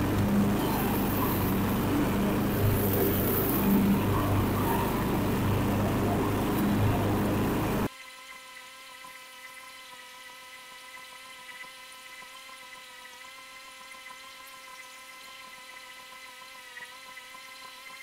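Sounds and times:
faint steady hum: 0.0s - 7.9s
riding lawn mower engine cutting grass: 0.0s - 7.9s.

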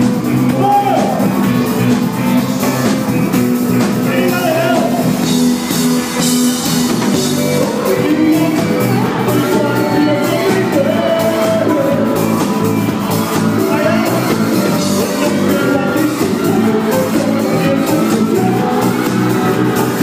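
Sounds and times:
conga drums: 0.0s - 20.0s
live band playing: 0.0s - 20.0s
person singing: 3.9s - 5.3s, 7.1s - 20.0s.

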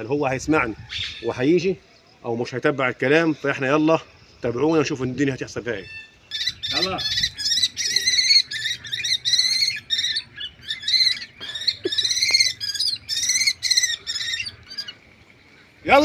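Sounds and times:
kestrel shrill calls: 0.8s - 1.4s, 5.7s - 16.0s.

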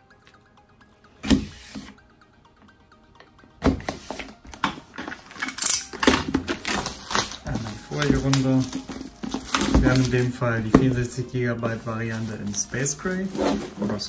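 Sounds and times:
plastic film crinkling as peeled: 5.2s - 10.8s, 11.5s - 14.0s
knife slitting plastic wrap: 5.4s - 10.3s.

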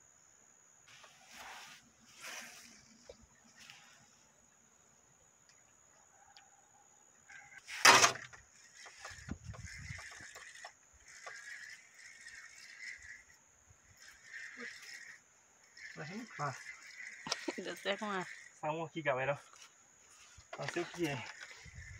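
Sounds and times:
high insect buzz: 0.0s - 21.9s
fishing reel winding: 8.3s - 18.6s, 20.8s - 21.9s.

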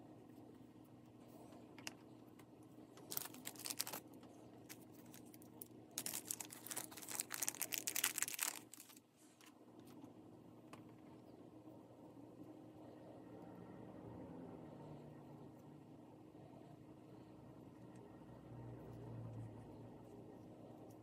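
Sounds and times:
plastic packaging crinkling: 3.0s - 9.5s.

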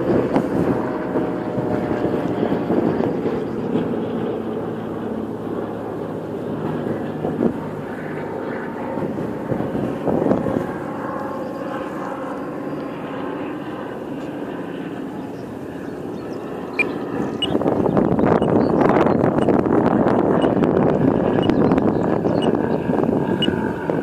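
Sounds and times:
propeller planes droning overhead: 0.0s - 24.0s.

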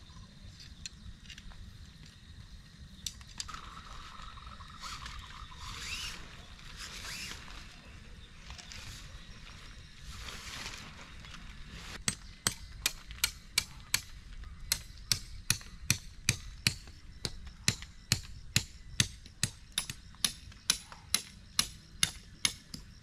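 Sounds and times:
hammer driving tent stakes: 12.0s - 22.9s.

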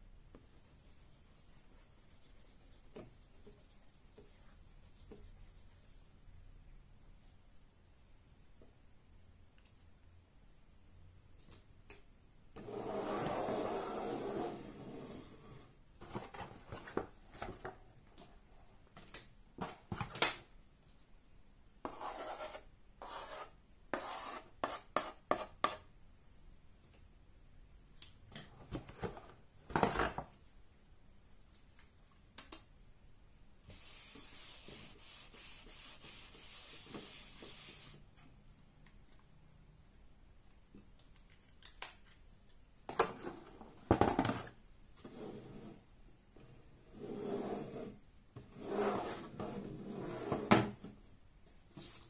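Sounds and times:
chalk scratching on chalkboard: 0.5s - 6.0s, 21.8s - 25.9s, 33.7s - 38.0s
eraser rubbing chalkboard: 12.6s - 15.6s, 21.8s - 25.9s, 33.7s - 38.0s.

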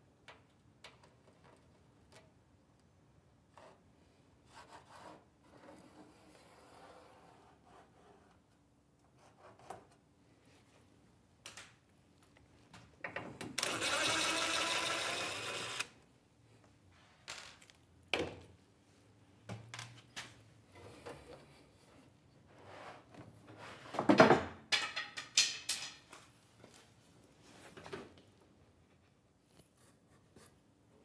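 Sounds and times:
cordless drill backing out screw: 13.6s - 15.9s.

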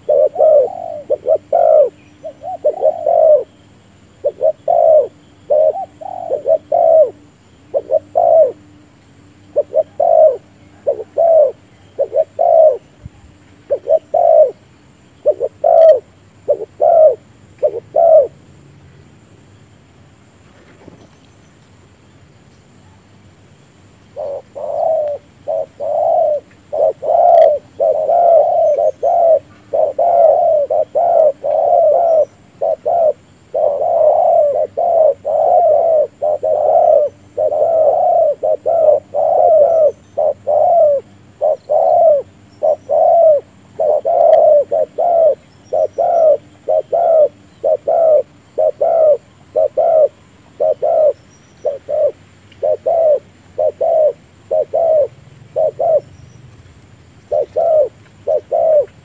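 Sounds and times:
dove cooing: 0.0s - 18.4s, 24.1s - 56.2s, 57.2s - 59.0s.

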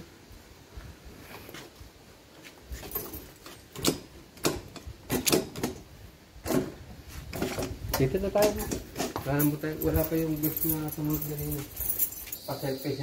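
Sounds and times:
irregular clicks and knocks: 2.9s - 12.3s.

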